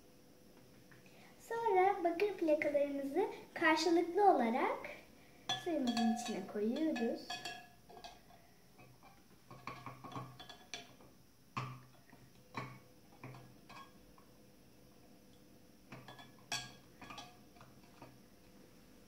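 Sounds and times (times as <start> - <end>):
metal clicks on metal and glass: 5.5 - 14.3, 15.9 - 18.2.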